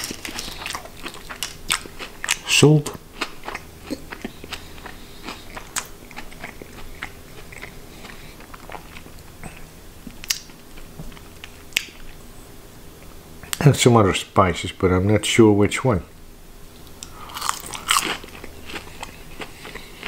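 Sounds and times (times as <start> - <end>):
person chewing crunchy food: 0.0 - 12.1, 16.9 - 20.0.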